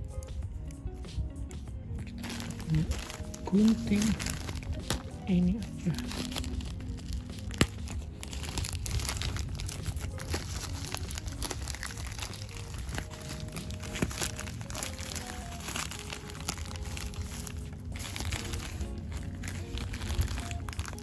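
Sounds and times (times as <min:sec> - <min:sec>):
faint background music: 0:00.0 - 0:21.0
plastic bag crinkling and tearing: 0:02.0 - 0:21.0.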